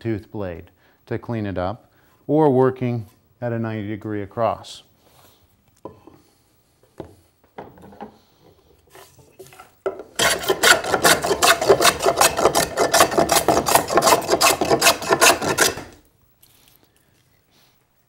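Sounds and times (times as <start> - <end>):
hand plane rasping across wood: 10.2 - 16.0.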